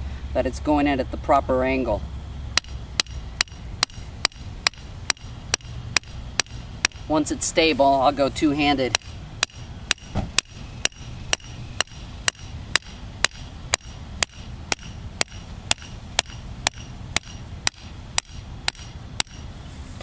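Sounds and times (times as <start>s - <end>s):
mallet striking steel stake: 2.6s - 7.2s, 8.8s - 19.5s.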